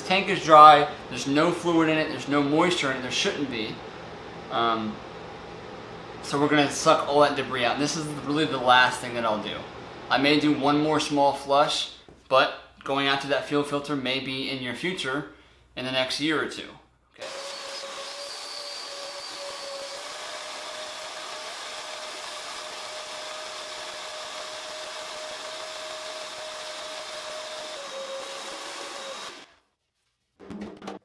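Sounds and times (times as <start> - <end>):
shop vacuum whining: 17.2 - 29.5.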